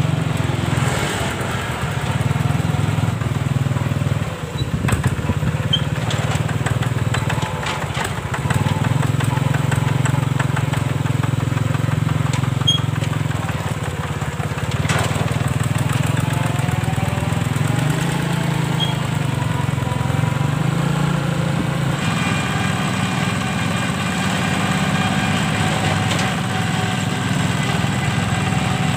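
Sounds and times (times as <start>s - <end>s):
diesel tractor engine running: 0.0s - 28.9s.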